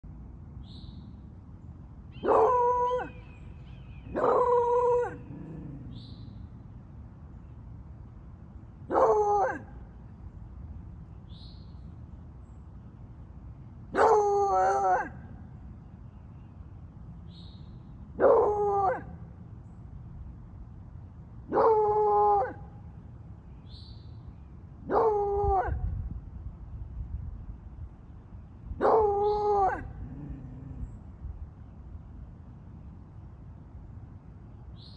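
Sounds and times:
dog howling: 28.8s - 30.8s.

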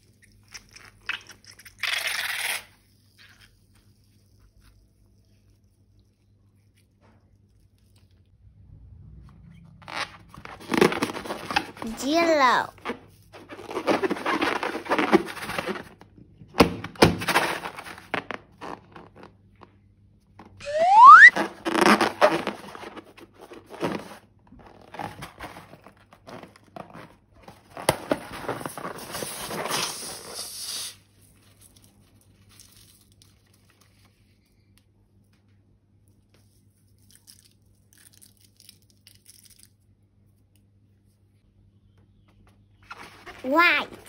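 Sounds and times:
crinkly rustling: 9.9s - 16.0s, 21.4s - 30.1s
rising squeak: 20.6s - 21.3s.

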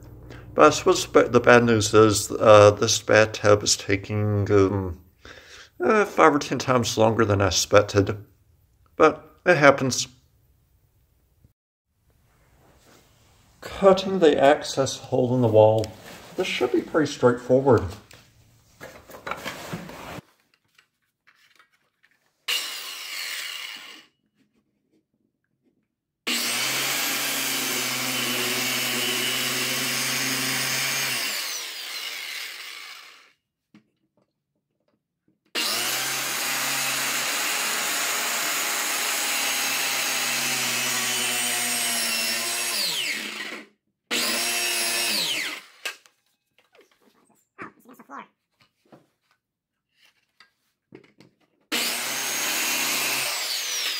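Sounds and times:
electric power saw cutting: 22.5s - 24.1s, 26.3s - 33.4s, 35.6s - 46.0s, 51.7s - 53.9s.

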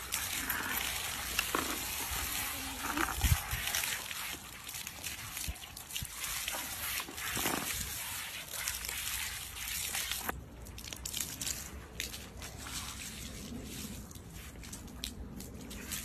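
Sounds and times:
hose water spraying: 0.0s - 10.3s
water splashing and dripping: 0.0s - 16.0s.

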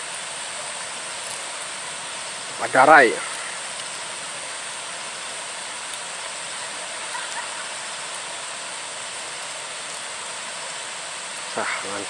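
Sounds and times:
steady rushing noise: 0.0s - 12.0s
faint light clicks: 3.3s - 4.0s.

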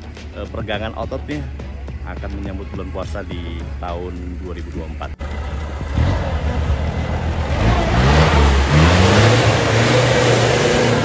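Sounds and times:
truck engine revving hard: 5.2s - 11.0s
tyres churning mud: 5.5s - 11.0s.

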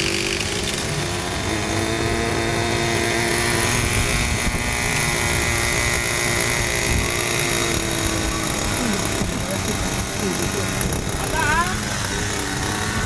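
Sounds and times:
model helicopter engine buzzing: 0.0s - 13.0s
wind rumbling on microphone: 3.4s - 8.2s, 8.9s - 13.0s.

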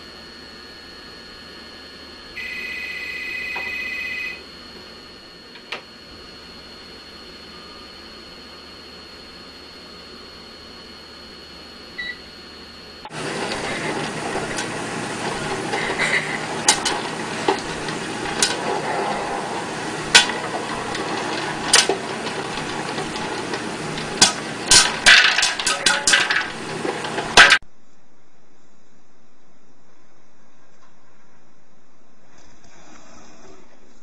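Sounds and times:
popcorn popping: 13.1s - 27.6s.

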